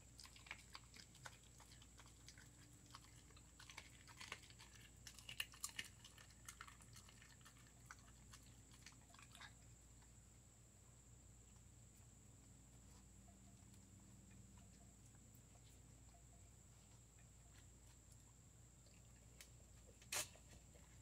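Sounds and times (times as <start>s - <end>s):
dog crunching bones: 0.0s - 10.1s.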